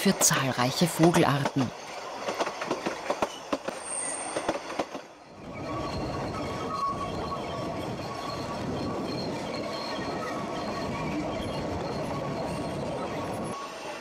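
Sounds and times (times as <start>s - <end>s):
train carriages rumbling on rails: 0.0s - 14.0s
wheel flanges squealing: 5.2s - 13.8s.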